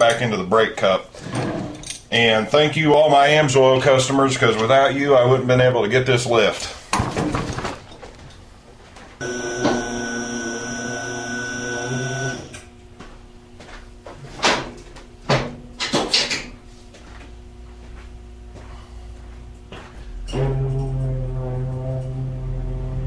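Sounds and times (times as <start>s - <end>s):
lift table motor humming: 9.2s - 12.8s.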